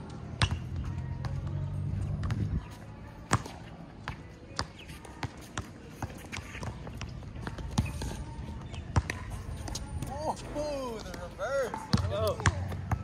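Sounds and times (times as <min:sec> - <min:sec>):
basketball bouncing on hard court: 0:03.3 - 0:08.1, 0:11.7 - 0:13.0.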